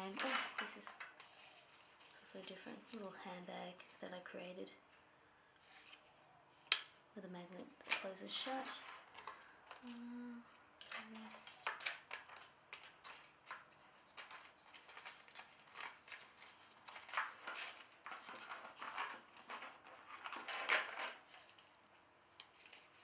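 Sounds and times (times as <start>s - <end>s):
paper tags rustling and sliding: 0.0s - 4.4s, 5.6s - 6.7s, 10.8s - 23.0s.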